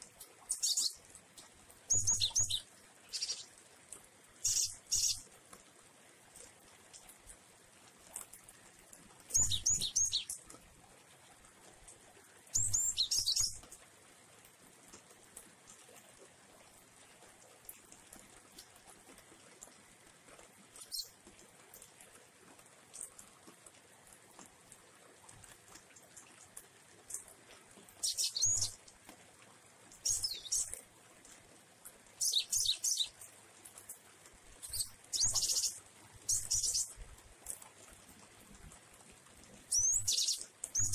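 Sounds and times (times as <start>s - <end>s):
bird chirping: 0.5s - 1.0s, 1.9s - 3.5s, 4.4s - 5.2s, 9.3s - 10.4s, 12.5s - 13.6s, 28.0s - 28.8s, 30.0s - 30.7s, 32.2s - 33.2s, 34.6s - 36.9s, 39.7s - 40.9s.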